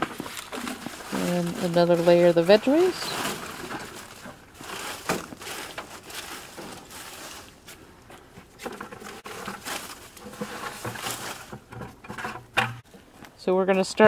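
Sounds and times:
soft pats of leaves landing: 0:00.0 - 0:07.8
leaves rustling and crinkling: 0:00.0 - 0:14.0.

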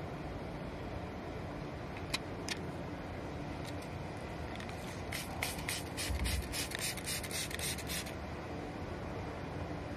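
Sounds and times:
spray bottle squirting: 0:05.1 - 0:08.1.

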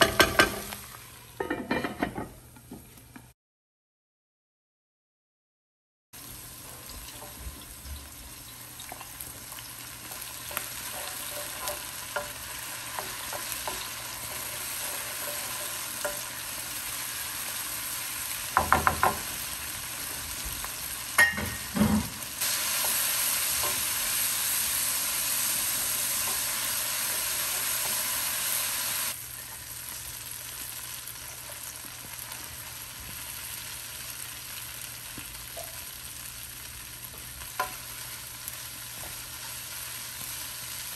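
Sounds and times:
vegetables sizzling in a pan: 0:00.0 - 0:01.5, 0:06.2 - 0:40.9
wooden spoon knocking a pan: 0:18.6 - 0:19.3.

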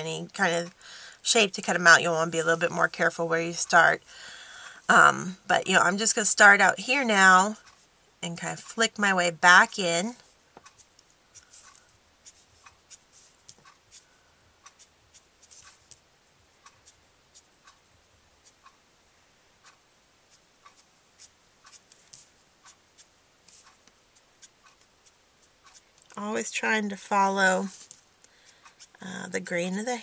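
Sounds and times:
marker nib scratching on cardstock: 0:10.6 - 0:16.0, 0:18.4 - 0:18.8, 0:20.3 - 0:26.0, 0:28.6 - 0:29.0.

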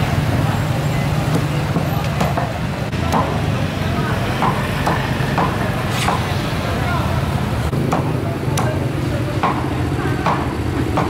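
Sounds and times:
market crowd hubbub: 0:00.0 - 0:11.0.

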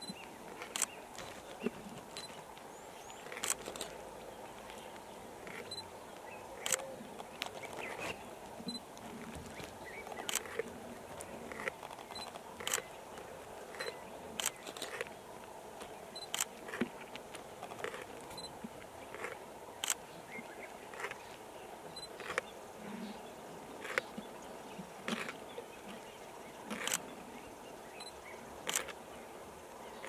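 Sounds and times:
camera shutters clicking: 0:03.3 - 0:03.9, 0:06.6 - 0:06.9, 0:10.2 - 0:10.6, 0:11.5 - 0:12.8, 0:28.7 - 0:29.0.

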